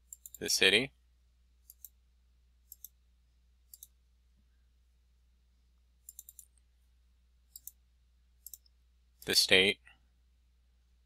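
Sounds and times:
computer mouse clicks: 0.0 - 0.4, 1.6 - 2.0, 2.7 - 3.0, 3.7 - 4.0, 6.0 - 6.6, 7.5 - 7.8, 8.4 - 9.3
quiet room hum: 0.0 - 11.0.

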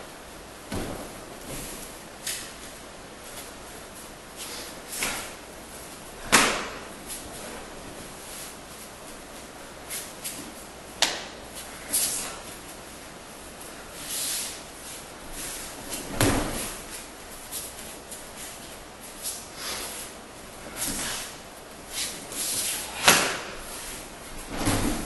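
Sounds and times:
bare feet sliding on mat: 0.6 - 10.7, 13.6 - 25.0
heavy thud on mat: 0.7 - 1.8, 16.0 - 16.8, 24.4 - 25.0
sharp slap: 4.9 - 5.4, 6.2 - 6.9, 11.0 - 11.4, 22.9 - 23.6.

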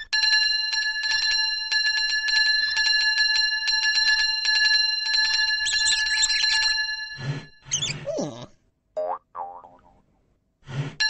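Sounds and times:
high squeaky sound: 7.7 - 8.2.

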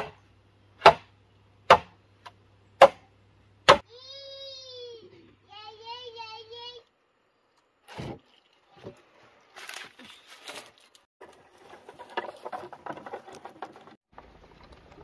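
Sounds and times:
bamboo poles knocking together: 9.6 - 14.0.

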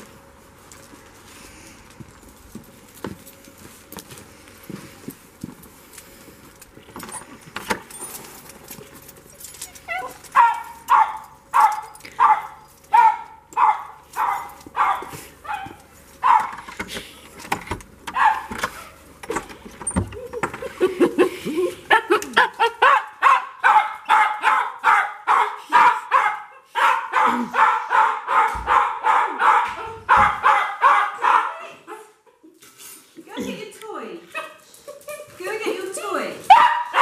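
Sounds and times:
small dog barking: 9.9 - 16.5, 18.2 - 18.5, 22.8 - 32.1, 36.5 - 37.0.

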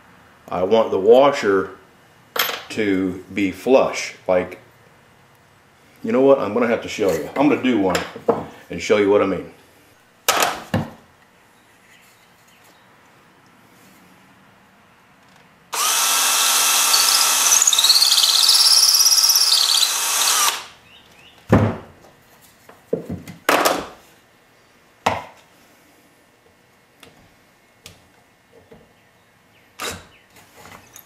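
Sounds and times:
cordless drill boring wood: 15.7 - 20.7.

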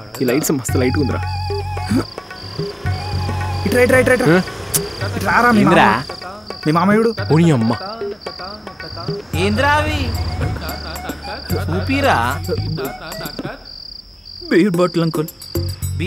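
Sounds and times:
background music: 0.0 - 13.8
crickets chirping: 0.0 - 16.0.

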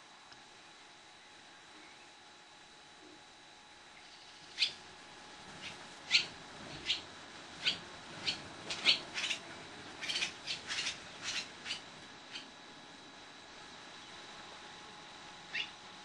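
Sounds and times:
swallow chirping: 4.5 - 4.8, 5.6 - 7.0, 7.6 - 9.4, 10.0 - 12.5, 15.5 - 15.7.

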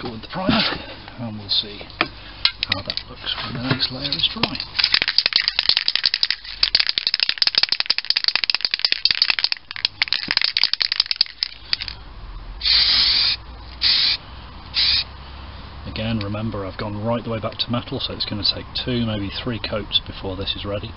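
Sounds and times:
aerosol can ball rattling: 4.4 - 12.0
spray hissing: 12.6 - 14.2, 14.8 - 15.0.

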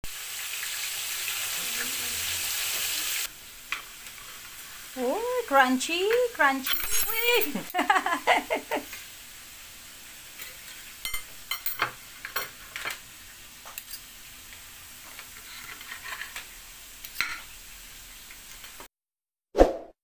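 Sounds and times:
cutlery scraping on plate: 15.2 - 16.4, 17.0 - 17.5.

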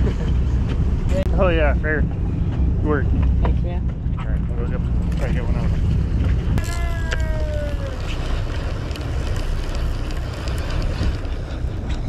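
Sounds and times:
boat engine rumble: 0.0 - 12.0
wind on microphone: 0.0 - 12.0
short pitched cry: 6.6 - 8.0.

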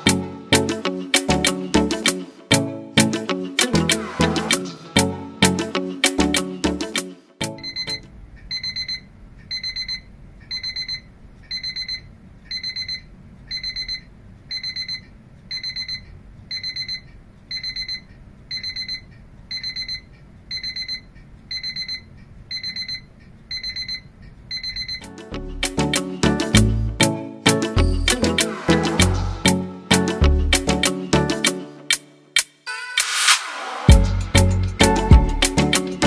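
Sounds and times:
alarm clock beeping: 7.5 - 25.1.

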